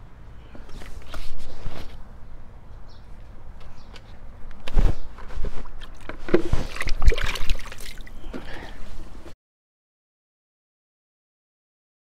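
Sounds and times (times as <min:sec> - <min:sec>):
water splashing and sloshing: 0:05.4 - 0:08.6.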